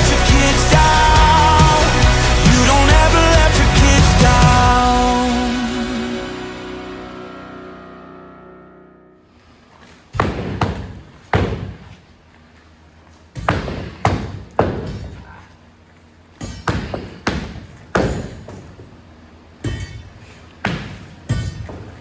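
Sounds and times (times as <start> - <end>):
sledgehammer striking concrete: 16.4 - 18.6.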